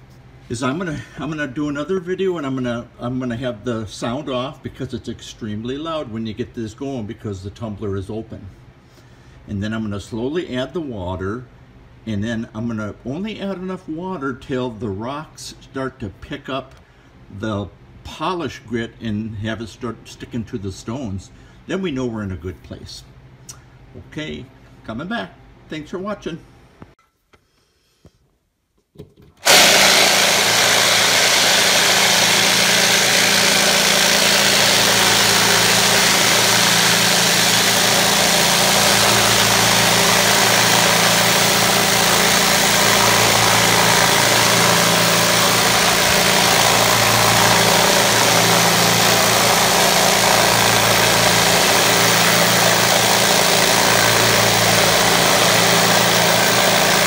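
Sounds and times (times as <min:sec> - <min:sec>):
rock tumbler motor hum: 0:29.4 - 0:57.0.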